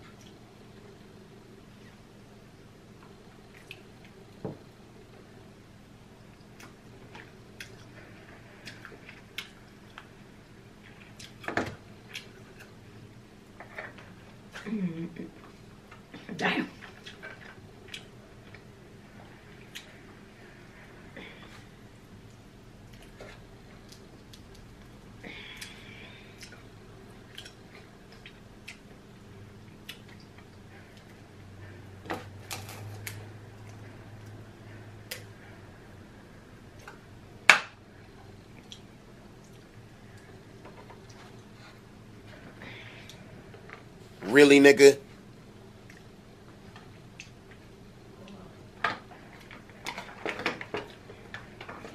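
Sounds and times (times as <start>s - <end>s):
wet smacking and chewing: 10.8s - 11.5s, 12.1s - 12.8s, 16.8s - 18.7s, 19.6s - 20.0s, 25.6s - 29.0s, 29.7s - 31.2s, 38.5s - 39.8s, 45.8s - 46.2s, 47.1s - 47.6s.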